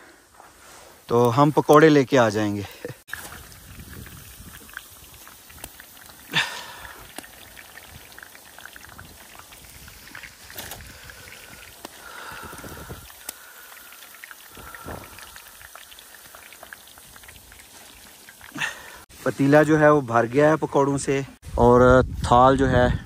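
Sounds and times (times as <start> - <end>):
food deep-frying in hot oil: 1.1 - 21.1.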